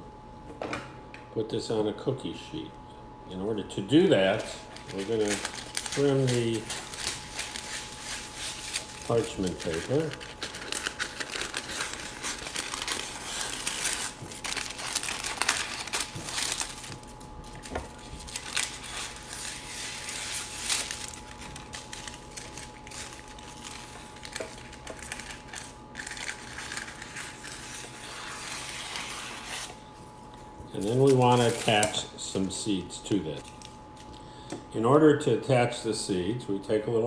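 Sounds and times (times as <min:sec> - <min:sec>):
parchment paper crinkling: 0:04.2 - 0:29.8, 0:30.8 - 0:32.1.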